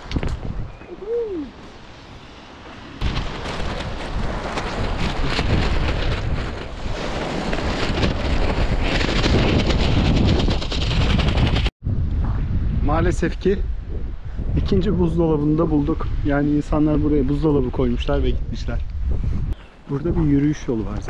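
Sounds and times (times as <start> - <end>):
wind buffeting microphone: 0.0 - 2.1, 3.0 - 21.0.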